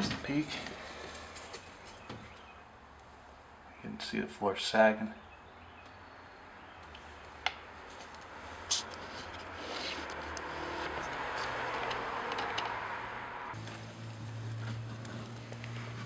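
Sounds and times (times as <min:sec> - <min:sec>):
vehicle passing: 0:06.4 - 0:16.0.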